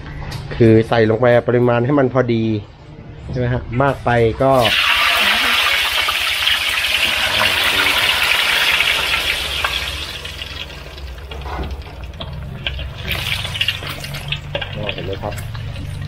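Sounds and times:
eggs sizzling in hot oil: 0:04.6 - 0:16.0.

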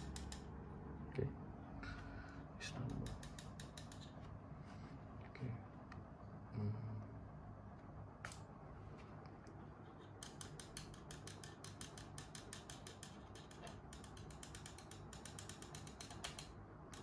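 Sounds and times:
rapid mechanical clicks: 0:00.0 - 0:00.6, 0:02.6 - 0:04.2, 0:10.0 - 0:17.0
steady low hum: 0:00.0 - 0:17.0.

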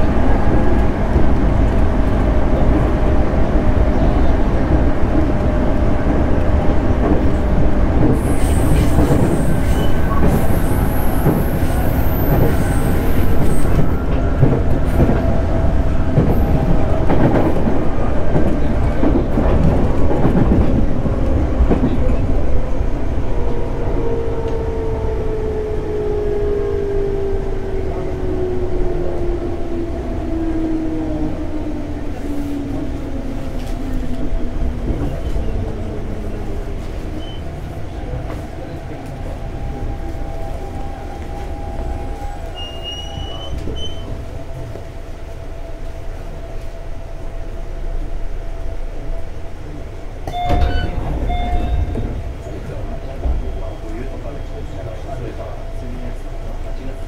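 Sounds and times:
train rolling noise: 0:00.0 - 0:57.0
train whine sinking in pitch: 0:50.2 - 0:55.9.

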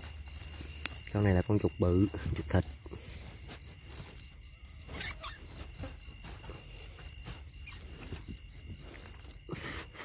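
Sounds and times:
insect chirping: 0:00.0 - 0:10.0
rustles and knocks: 0:02.1 - 0:09.8.

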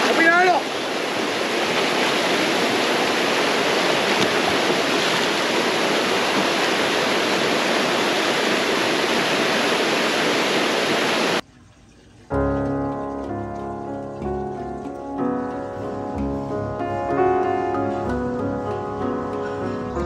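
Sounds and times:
water cascading into pool: 0:00.0 - 0:15.0.

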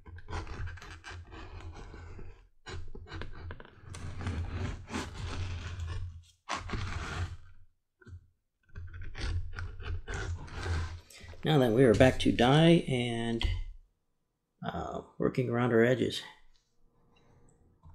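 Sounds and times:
edge beveler scraping leather: 0:00.0 - 0:07.6, 0:08.7 - 0:11.1.

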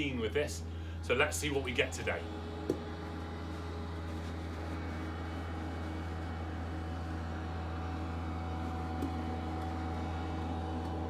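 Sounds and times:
low mechanical hum: 0:00.0 - 0:11.0.

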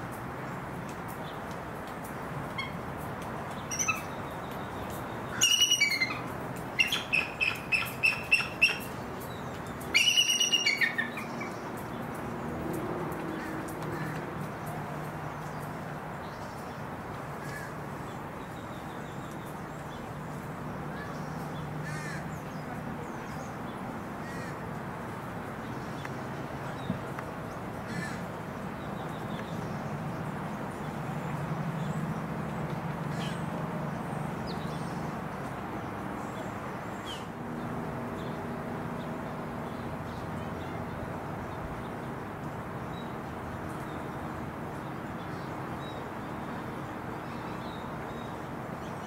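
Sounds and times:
eagle chirping calls: 0:05.3 - 0:06.2, 0:06.8 - 0:08.9, 0:09.9 - 0:11.3.

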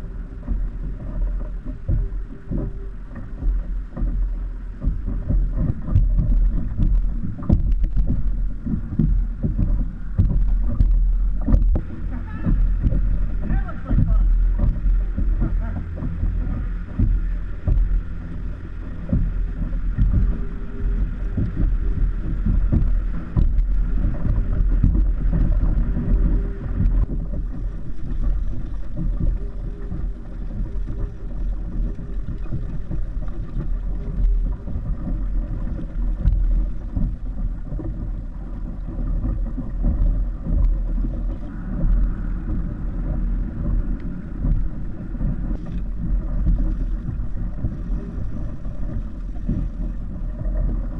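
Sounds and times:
water rushing along kayak: 0:00.0 - 0:50.9
wind buffeting microphone: 0:00.0 - 0:50.9.

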